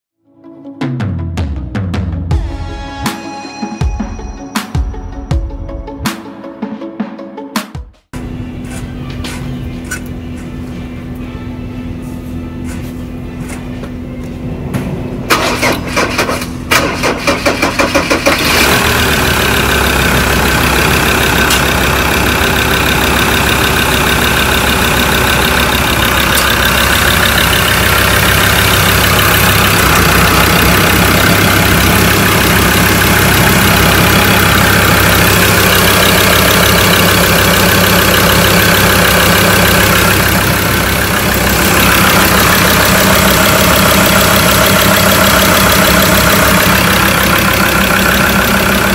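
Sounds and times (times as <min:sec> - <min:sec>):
engine idling: 0:08.2 - 0:48.9
engine starter cranking: 0:15.3 - 0:48.9.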